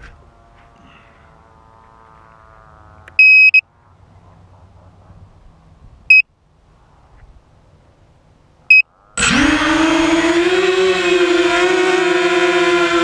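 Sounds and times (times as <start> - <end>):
short high electronic beeps: 3.2 - 3.6
drone motors whining: 8.7 - 13.0.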